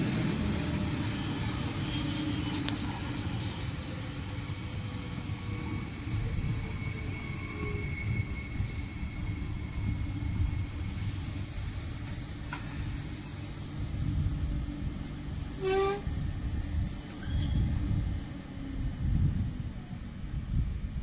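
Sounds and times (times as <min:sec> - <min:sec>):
train rumble: 0:00.0 - 0:21.0
high-pitched brake squeal: 0:00.4 - 0:18.0
train horn toot: 0:15.6 - 0:16.2.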